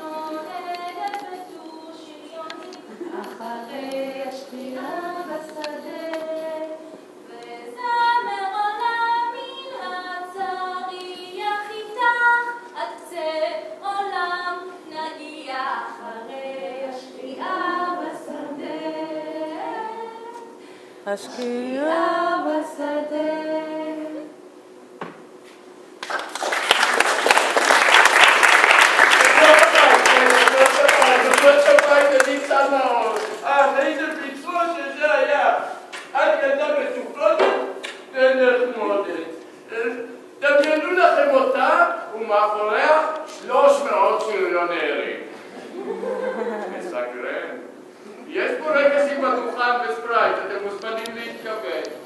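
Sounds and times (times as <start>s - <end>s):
woman singing into a microphone: 21.1s - 24.3s
audience applause: 26.0s - 34.0s.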